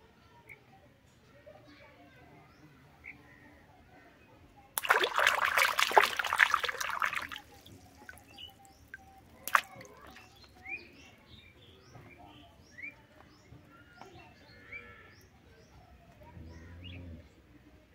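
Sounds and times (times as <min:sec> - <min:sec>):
toy splashing in water: 0:04.8 - 0:10.5.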